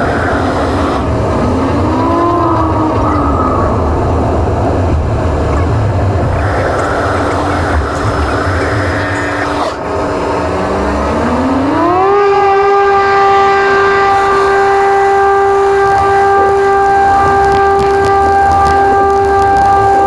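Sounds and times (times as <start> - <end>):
aircraft engine whine: 0.0 - 20.0
rushing rumble: 0.0 - 20.0.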